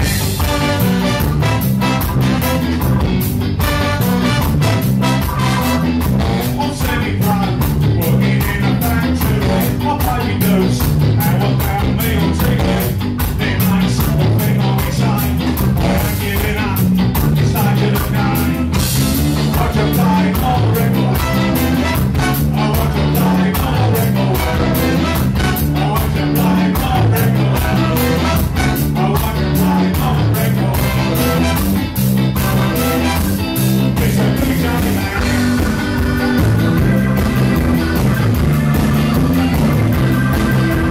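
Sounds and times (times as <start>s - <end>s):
tenor saxophone: 0.0s - 6.8s, 21.1s - 22.6s, 24.4s - 25.8s, 27.6s - 29.0s, 30.8s - 33.8s
trumpet: 0.0s - 6.9s, 21.0s - 22.9s, 24.3s - 26.0s, 27.5s - 29.2s, 30.7s - 33.8s
trombone: 0.0s - 7.4s, 12.4s - 13.0s, 15.4s - 16.4s, 18.3s - 40.9s
drums: 0.0s - 40.9s
electric guitar: 0.0s - 40.9s
man singing into microphone: 6.2s - 18.8s, 19.4s - 31.6s, 33.9s - 35.6s.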